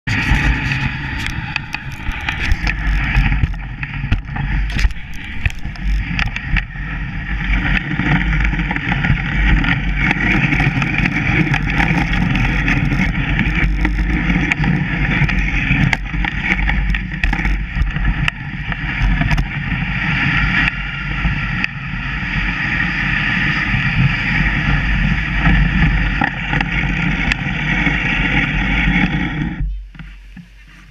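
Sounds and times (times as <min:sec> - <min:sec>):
sled knocking: 0:00.0 - 0:20.1
sled runners hissing on snow: 0:26.8 - 0:30.9.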